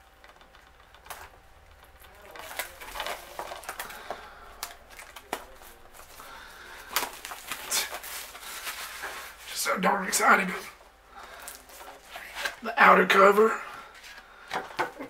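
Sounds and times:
shrink wrap crinkling: 0.0s - 12.7s.

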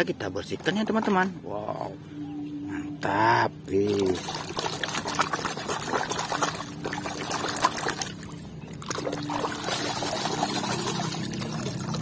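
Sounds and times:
water splashing in a tub: 3.8s - 12.0s.

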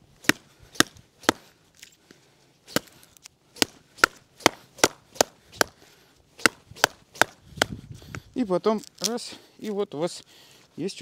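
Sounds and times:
knife chopping into wood: 0.2s - 1.5s, 2.7s - 3.0s, 3.6s - 5.8s, 6.4s - 7.8s.

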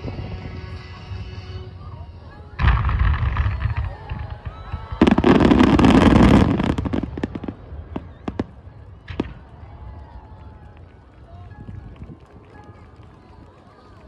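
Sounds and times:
fireworks bursting and crackling: 2.6s - 12.2s.

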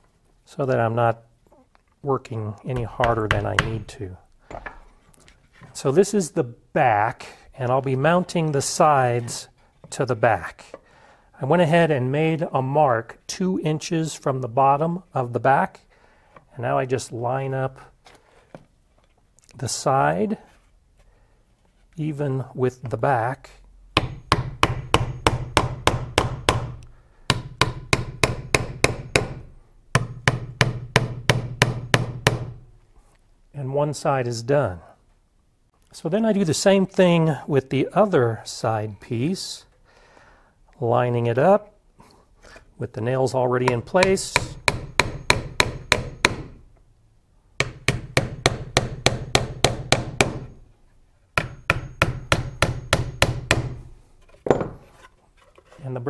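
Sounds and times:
hammer striking nails into wood: 24.0s - 32.6s, 43.7s - 46.6s, 47.6s - 50.6s, 51.4s - 53.8s.

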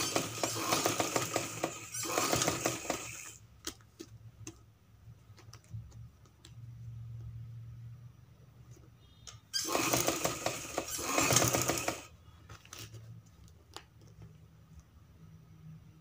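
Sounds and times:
sewing machine stitching: 0.0s - 3.4s, 9.6s - 12.2s.

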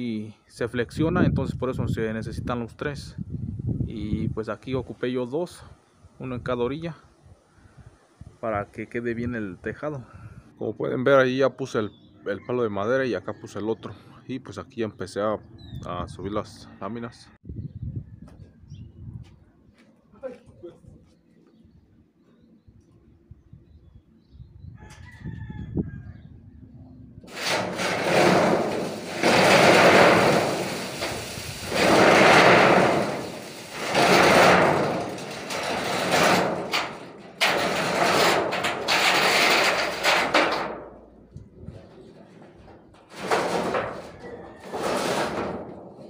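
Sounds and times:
metal roofing sheets scraping: 27.2s - 46.0s.

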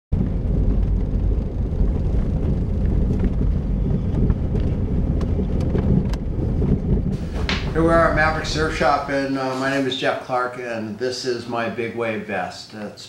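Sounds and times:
car engine and tyre rumble: 0.1s - 9.2s.

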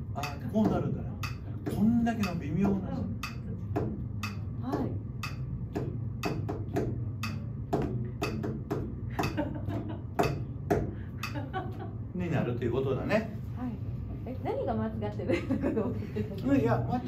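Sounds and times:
metronome clicking: 0.2s - 1.4s, 2.2s - 3.5s, 4.2s - 6.5s, 7.2s - 7.5s, 8.2s - 8.5s, 11.2s - 11.4s.

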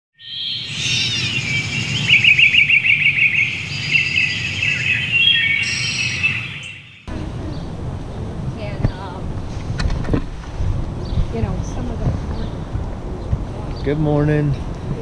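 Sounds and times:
birds chirping and singing: 0.2s - 7.7s
low rumble: 7.1s - 15.0s.

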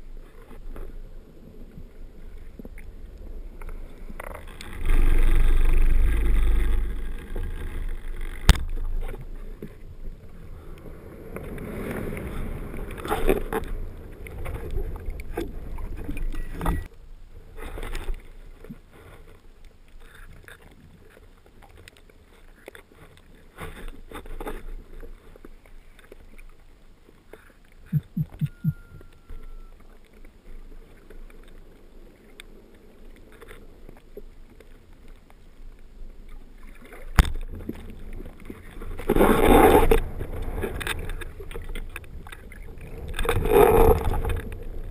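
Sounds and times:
rushes of churned water: 0.0s - 44.9s.

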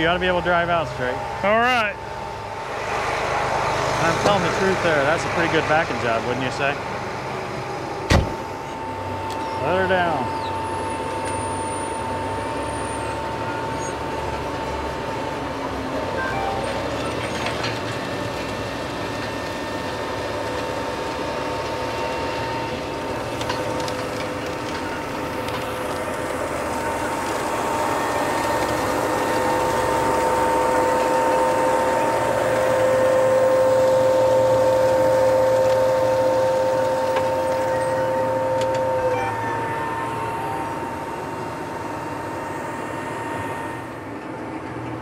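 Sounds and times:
whine of planter fans: 0.0s - 45.0s
rumble and rattle of planter: 16.7s - 39.8s.

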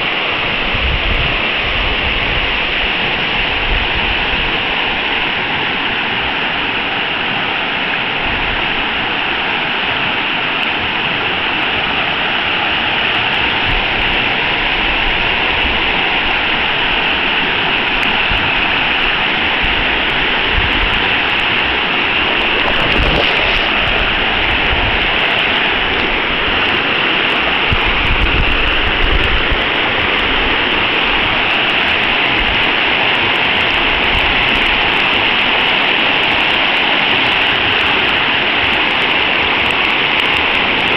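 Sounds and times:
river rapids rushing over rocks: 21.0s - 28.1s.

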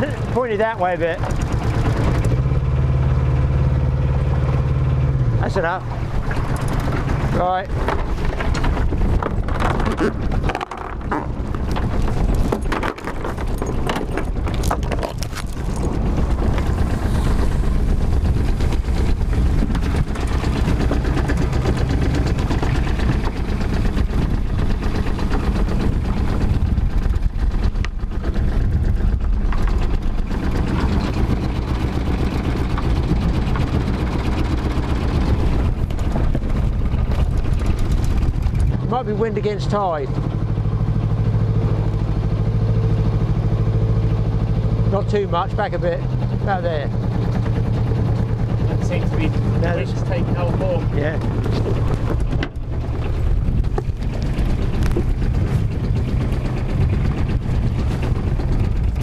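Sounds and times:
boat diesel engine running: 0.0s - 59.0s
wind buffeting microphone: 4.9s - 40.6s, 45.6s - 59.0s
knocks of anchor and rope: 6.2s - 17.4s, 50.5s - 59.0s.

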